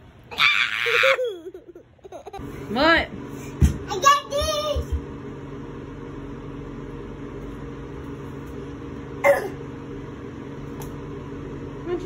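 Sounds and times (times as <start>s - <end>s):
fan humming: 0.0s - 12.0s.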